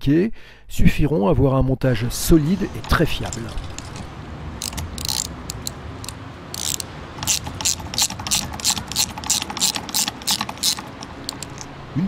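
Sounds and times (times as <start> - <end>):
ratchet wrench clicking: 2.8 - 11.7.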